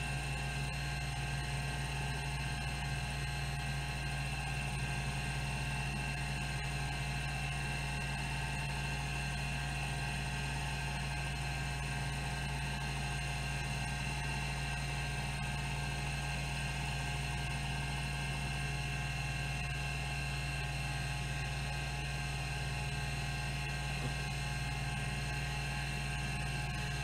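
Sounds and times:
hard drive hum and whine: 0.0 - 27.0.

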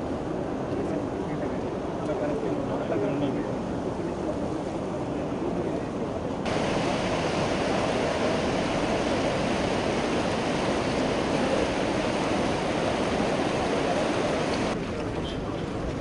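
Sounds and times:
floodwater rushing: 6.4 - 15.1.

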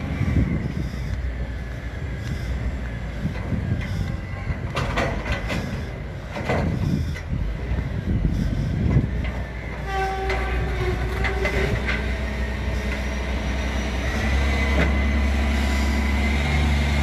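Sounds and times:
freight train low rumble: 0.0 - 17.0
metallic screeches and clanks: 8.3 - 16.0.

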